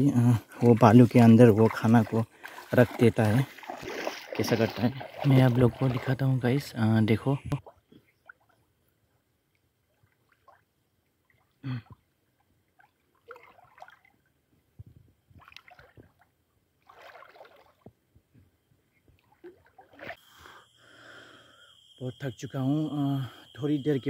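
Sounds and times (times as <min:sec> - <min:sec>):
shallow water splashing: 0:00.5 - 0:06.9, 0:12.7 - 0:14.3, 0:15.4 - 0:17.9, 0:19.2 - 0:20.2.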